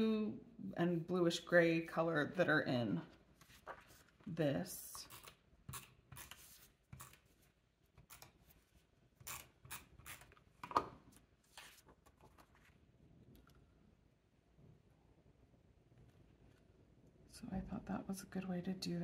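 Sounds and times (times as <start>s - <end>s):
tape runner drawn across paper: 5.0s - 10.4s.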